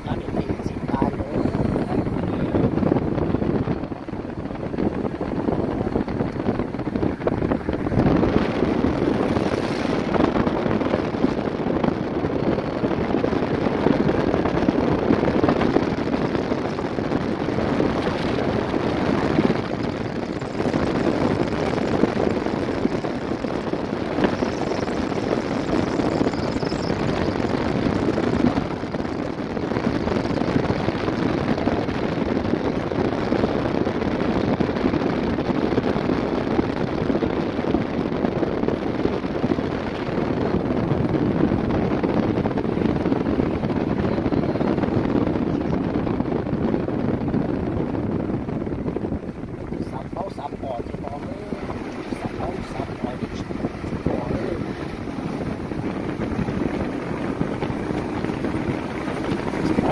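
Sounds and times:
moving vehicle rumble: 0.0 - 59.9.

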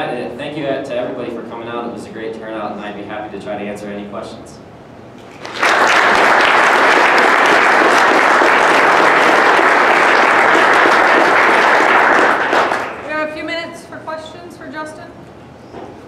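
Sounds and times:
people talking: 0.0 - 4.6, 13.0 - 15.2
audience applauding: 5.2 - 13.1.

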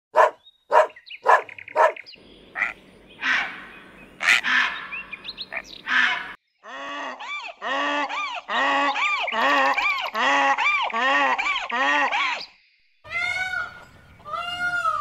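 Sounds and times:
dog barking: 0.1 - 2.0
wild ass braying: 0.7 - 12.1
egret croaking harshly: 2.5 - 6.4.

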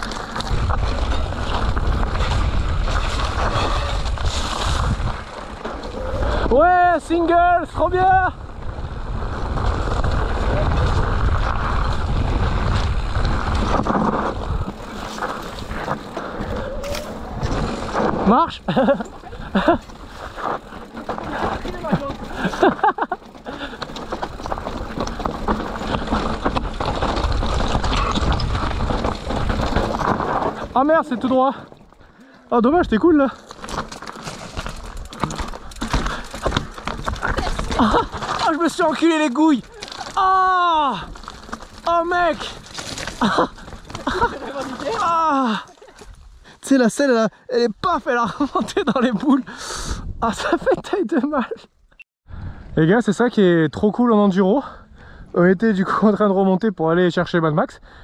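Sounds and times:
wind rumbling on microphone: 0.0 - 32.1, 49.5 - 50.5
mountain bike trail noise: 0.0 - 58.0.

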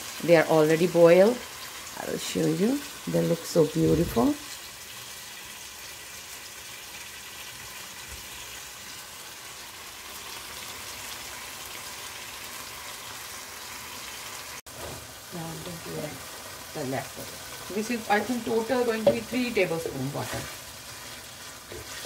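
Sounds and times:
sauce sizzling in a frying pan: 0.0 - 22.0.

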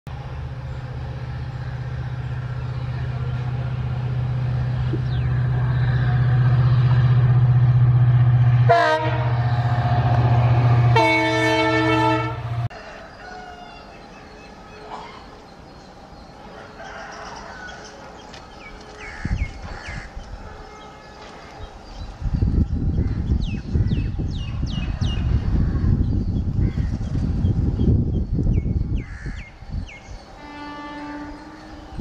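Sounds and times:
locomotive engine drone: 0.1 - 13.0
train horn: 5.6 - 12.8, 20.4 - 21.6, 30.3 - 32.0.

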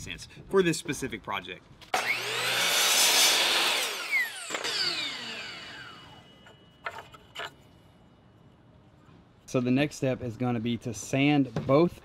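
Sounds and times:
miter saw cutting wood: 1.9 - 7.5.

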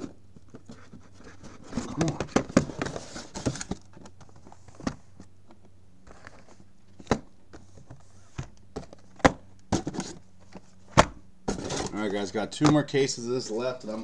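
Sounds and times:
boxes knocking on a table: 8.4 - 10.2.

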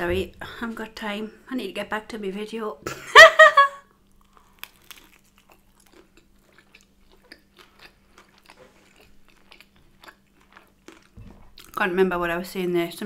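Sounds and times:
biting and chewing: 4.2 - 11.8.

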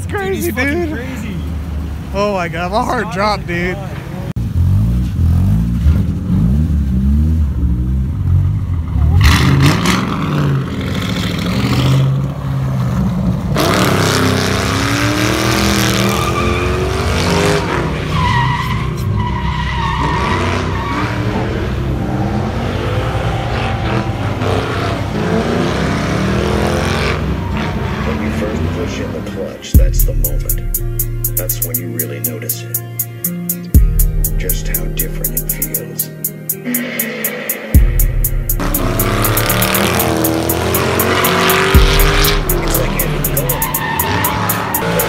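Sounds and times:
car engine revving: 4.0 - 32.2, 33.8 - 45.0
tyres squealing: 42.5 - 45.0.

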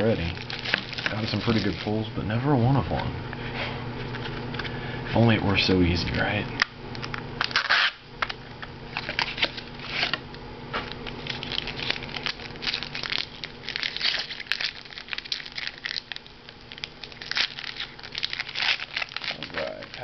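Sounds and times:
plastic wrapper tearing and crinkling: 0.0 - 2.0, 7.4 - 8.0, 8.9 - 10.2, 10.8 - 20.0.

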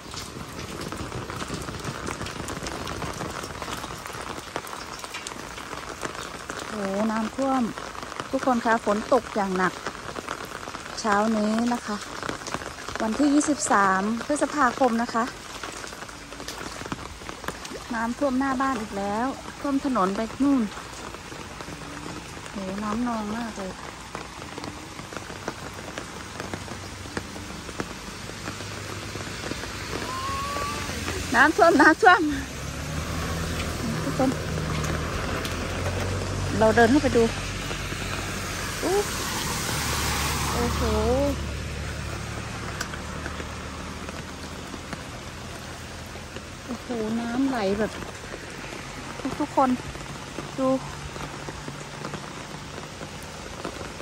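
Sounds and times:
drops pattering on standing water: 0.0 - 54.0
heavy rain on concrete: 0.0 - 54.0.

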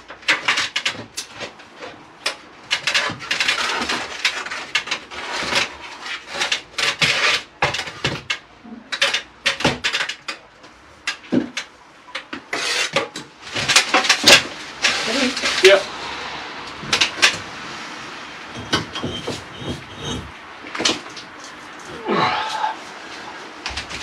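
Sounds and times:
hand tools scraping brick: 0.0 - 10.5, 12.2 - 15.9, 18.5 - 20.4.

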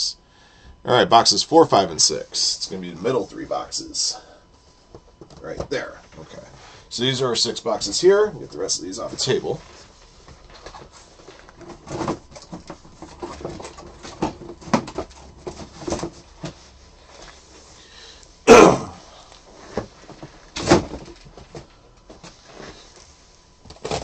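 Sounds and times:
cardboard boxes knocking and rustling: 10.3 - 16.7, 19.6 - 22.9.

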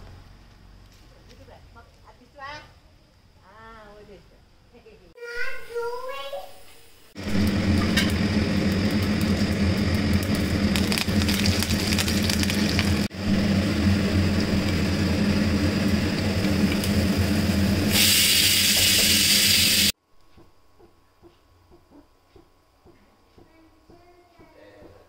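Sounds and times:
mixer grinder running: 7.2 - 20.0.

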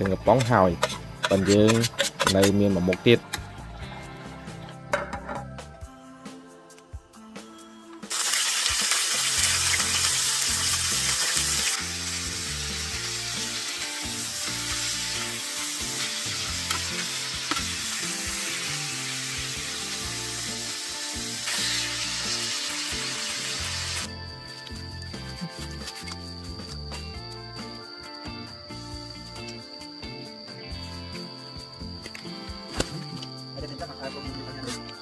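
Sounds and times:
meat sizzling in frying pan: 8.1 - 24.1.

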